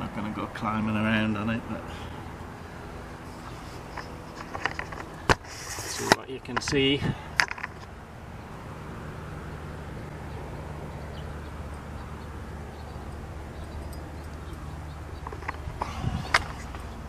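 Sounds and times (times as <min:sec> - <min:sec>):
engine humming: 0:00.0 - 0:17.0.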